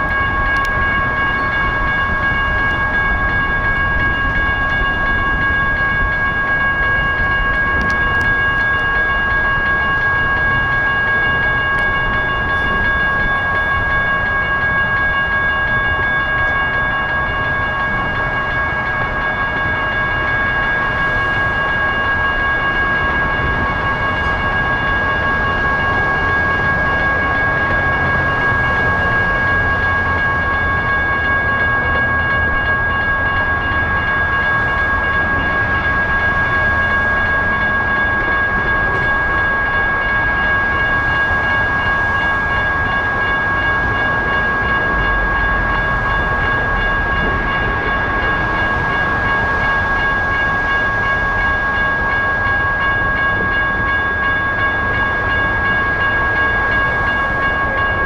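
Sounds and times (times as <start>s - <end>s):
railroad crossing bell ringing: 0.0s - 58.0s.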